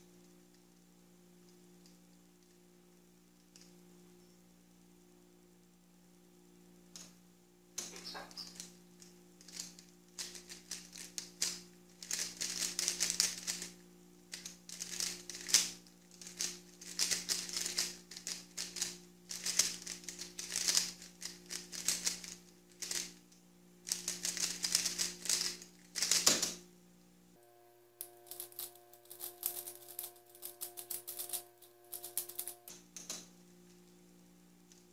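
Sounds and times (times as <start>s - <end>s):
puzzle cube clacking: 14.3s - 23.1s, 28.0s - 32.7s.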